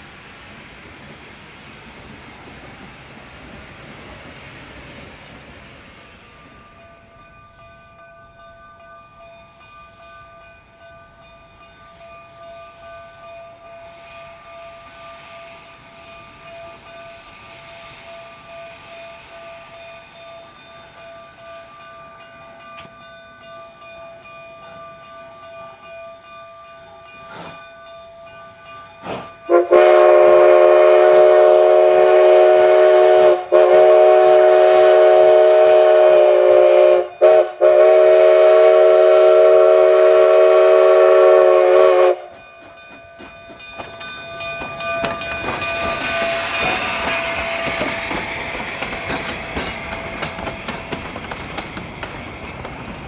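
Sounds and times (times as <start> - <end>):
train rushing past: 0.0 - 53.0
steam locomotive whistle: 29.0 - 42.4.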